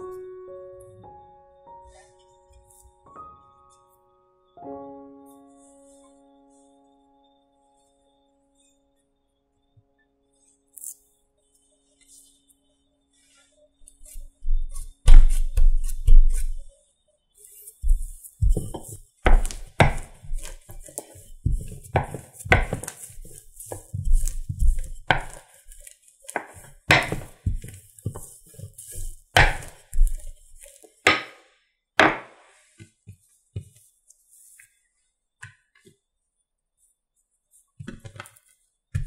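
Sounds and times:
rolling pin rolling dough: 13.8s - 16.8s, 17.4s - 31.4s, 32.0s - 34.7s.

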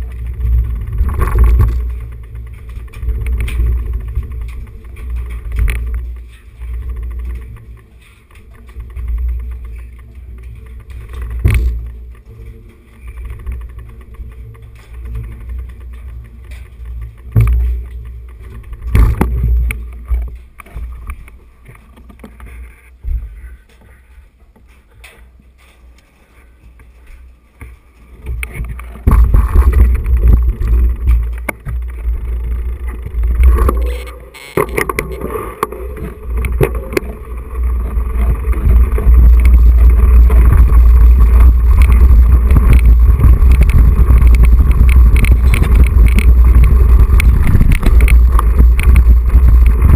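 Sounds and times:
tyre rumble on dirt track: 0.0s - 24.1s, 24.7s - 49.9s
wind on microphone: 28.4s - 49.9s.

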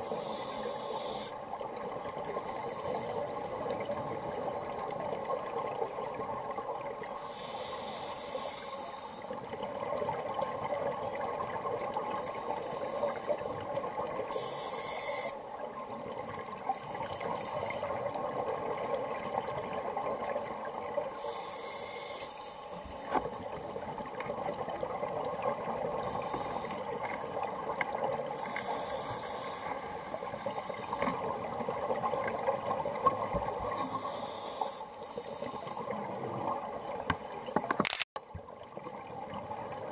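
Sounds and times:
diver breathing through regulator: 0.0s - 1.4s, 7.2s - 9.3s, 21.2s - 24.0s, 28.3s - 29.8s, 33.6s - 35.9s
steady underwater drone: 0.0s - 37.1s.

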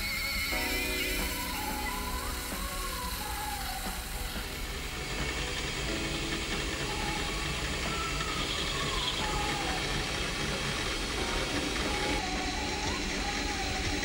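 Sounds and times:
milling machine running: 0.0s - 14.0s.

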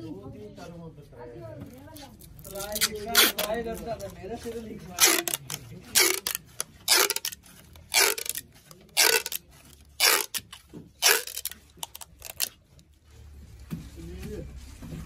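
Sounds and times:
packing tape pulled off roll: 2.4s - 4.1s, 5.0s - 9.4s, 10.0s - 12.6s.

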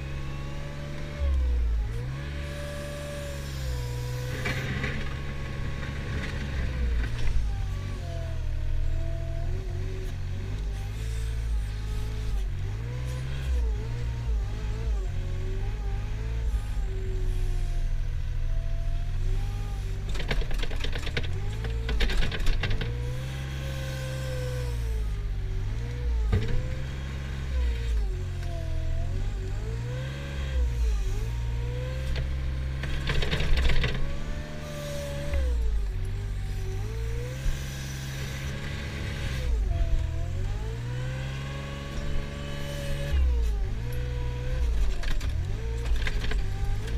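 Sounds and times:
loader engine under load: 0.0s - 17.5s, 19.4s - 46.9s
rapid clatter: 20.1s - 23.0s.

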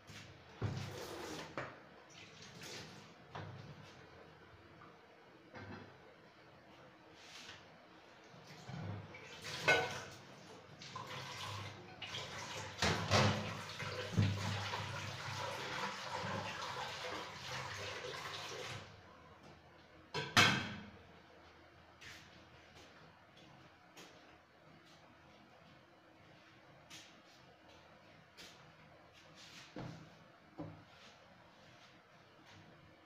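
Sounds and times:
water running: 0.6s - 3.4s, 8.5s - 19.0s.

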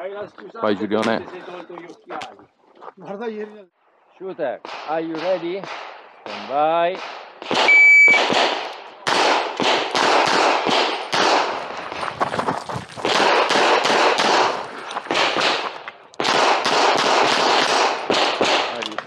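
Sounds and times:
pistol shots: 4.6s - 11.7s, 13.0s - 19.0s.

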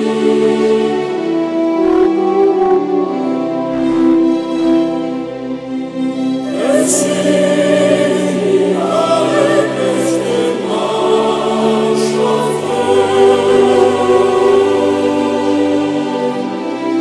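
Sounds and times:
choir singing: 0.0s - 17.0s
sustained chords: 0.0s - 17.0s.

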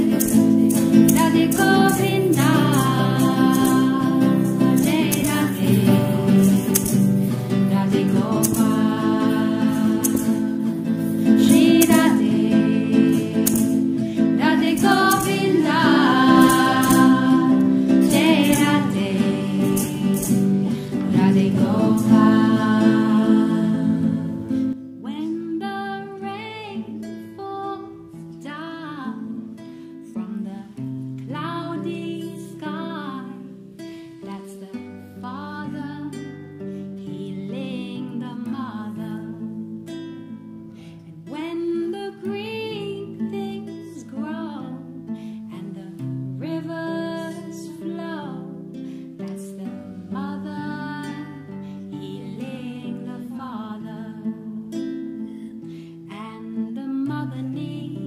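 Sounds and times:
person singing: 0.0s - 29.5s, 49.2s - 55.4s, 56.1s - 58.0s
acoustic guitar: 0.0s - 58.0s.

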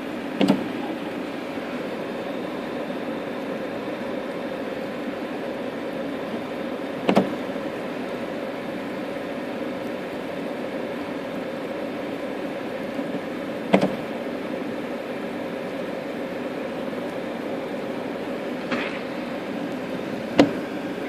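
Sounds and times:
car idling hum: 0.0s - 21.0s.

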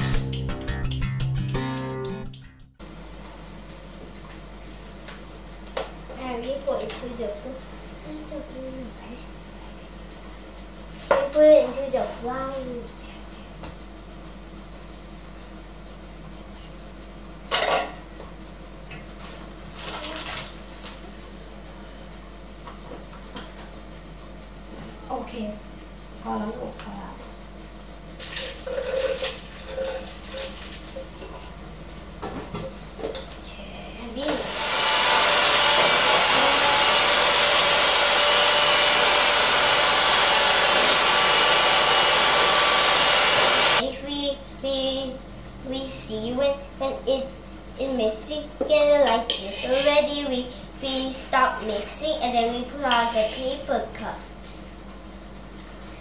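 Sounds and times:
kitchen utensils clattering: 28.3s - 31.5s
electric hand mixer running: 34.3s - 43.8s.

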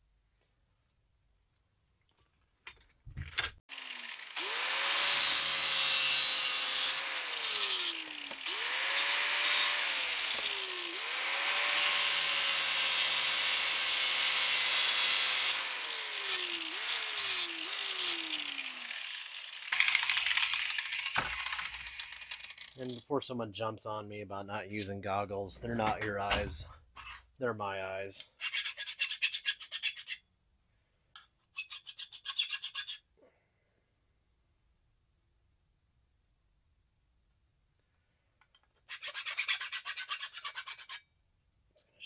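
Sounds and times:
angle grinder grinding steel: 3.7s - 23.0s.

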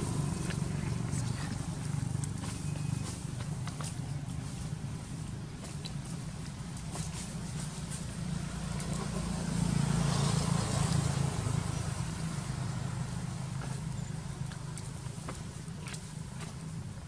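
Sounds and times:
motor vehicle passing by: 0.0s - 16.8s.

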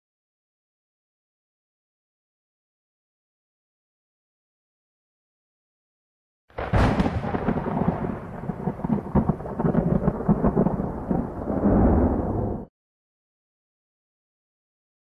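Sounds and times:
lightning crack: 6.5s - 12.7s
thunder rumbling: 6.6s - 12.7s.

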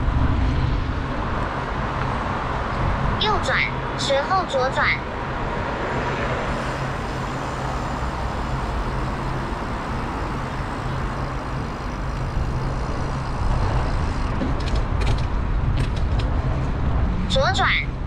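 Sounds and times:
road traffic noise: 0.0s - 18.0s
vehicle engine running: 6.1s - 17.4s.

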